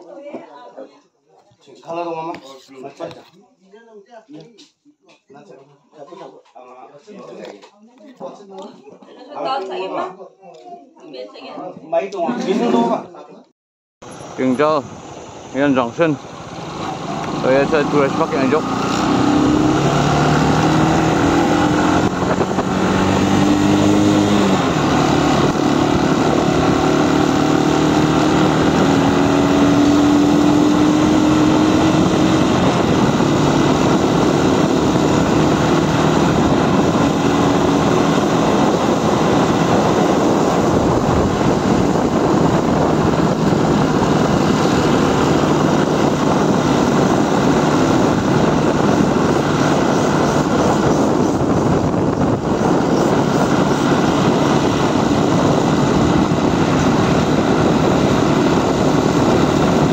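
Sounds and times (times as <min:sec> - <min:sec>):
motorcycle engine running: 0:14.1 - 0:59.9
wind rush on microphone: 0:14.2 - 0:59.9.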